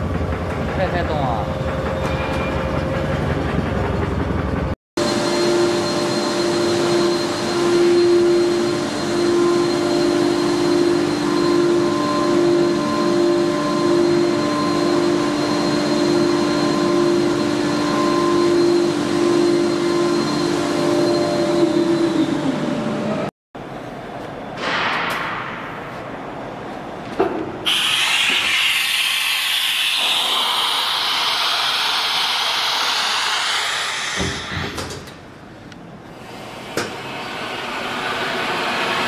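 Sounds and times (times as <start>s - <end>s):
vacuum pump motor whining hum: 5.0s - 23.3s, 27.7s - 35.5s.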